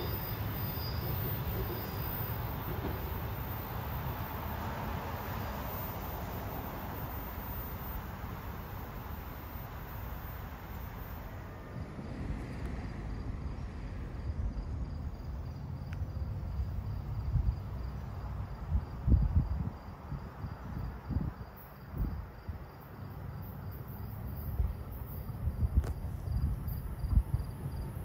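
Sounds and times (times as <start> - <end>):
insects chirping: 0.0 - 28.0
wind buffeting microphone: 17.2 - 22.7, 24.5 - 28.0.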